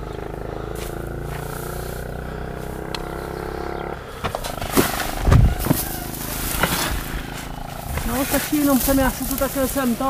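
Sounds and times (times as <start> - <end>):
machine drone: 0.0 - 10.0
hay bales thumping: 4.1 - 10.0.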